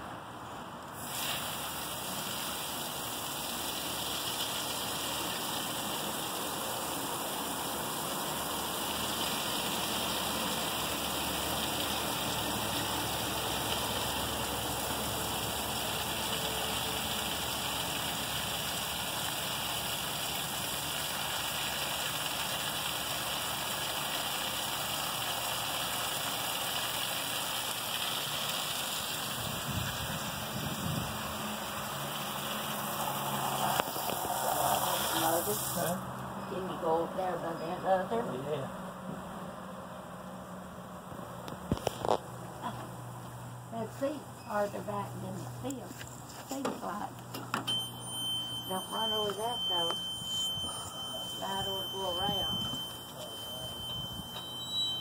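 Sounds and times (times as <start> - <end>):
water pouring into fountain: 0.9 - 36.2, 47.7 - 55.0.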